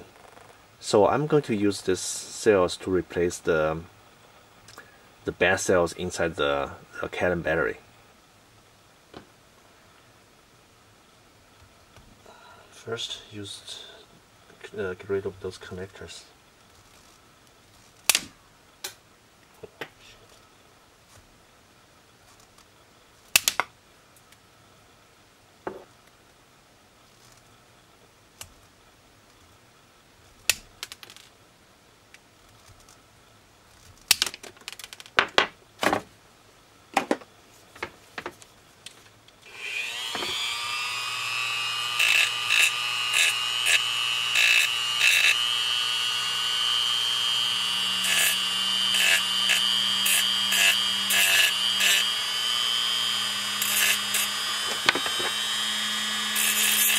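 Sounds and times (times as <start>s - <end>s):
grinding bit rasping on battery: 39.5s - 56.9s
rotary tool whining: 39.5s - 56.9s
side cutters snipping: 53.6s - 55.4s.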